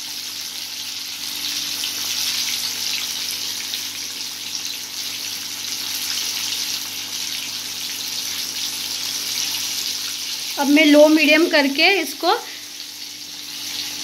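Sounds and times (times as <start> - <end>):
chicken deep-frying in oil: 0.0 - 14.0.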